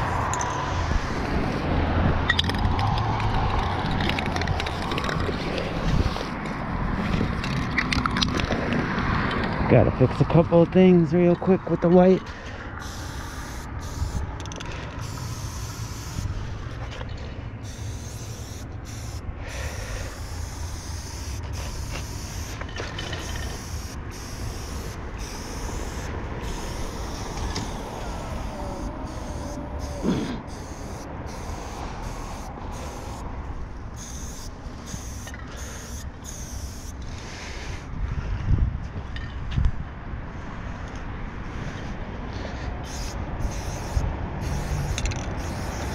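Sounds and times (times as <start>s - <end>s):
street traffic rumble: 0.0s - 45.9s
aerosol spray can hissing: 12.8s - 14.2s, 15.0s - 16.8s, 17.6s - 22.6s, 23.2s - 33.3s, 34.0s - 37.0s, 42.8s - 45.9s.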